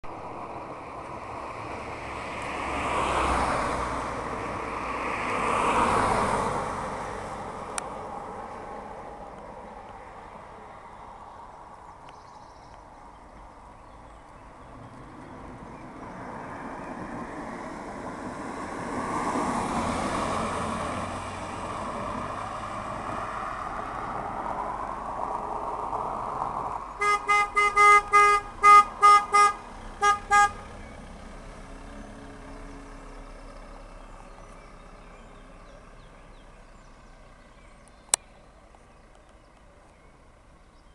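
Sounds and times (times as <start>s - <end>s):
passing vehicle: 0.0s - 40.9s
vehicle horn short beeps: 27.0s - 30.7s.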